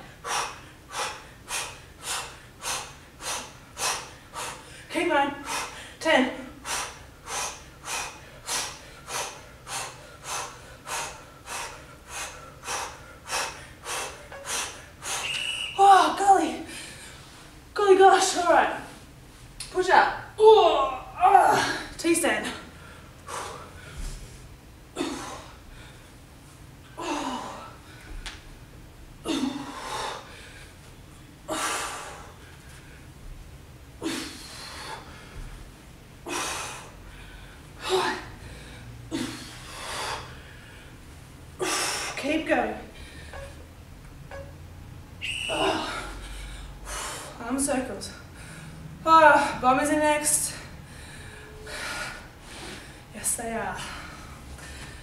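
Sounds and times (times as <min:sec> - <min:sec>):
woman breathing hard: 0:00.0 - 0:15.3, 0:21.5 - 0:28.4, 0:29.2 - 0:33.2, 0:34.0 - 0:35.6, 0:36.2 - 0:42.2, 0:42.9 - 0:43.6, 0:45.5 - 0:47.4, 0:48.2 - 0:49.0, 0:50.5 - 0:53.1, 0:53.7 - 0:55.0
woman exhaling with effort: 0:27.0 - 0:28.0, 0:36.2 - 0:40.4, 0:45.4 - 0:47.4.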